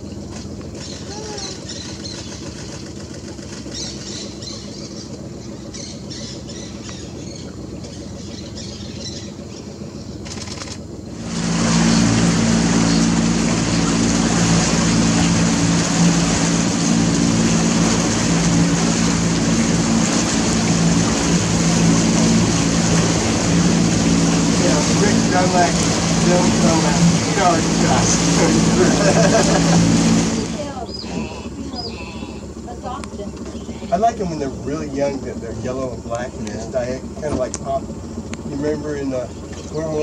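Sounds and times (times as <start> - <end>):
motorboat engine running: 0.0 - 40.0
rushing wind and water: 11.2 - 31.0.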